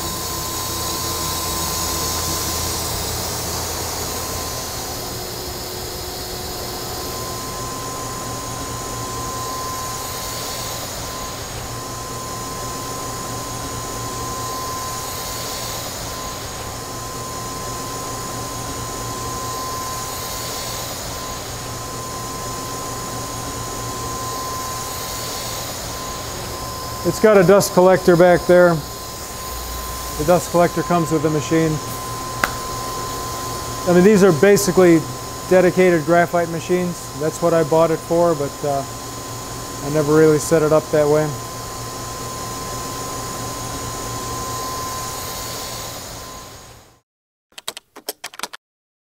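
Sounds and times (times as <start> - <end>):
machinery high whine: 0.0 - 47.0
low hum: 28.0 - 33.9.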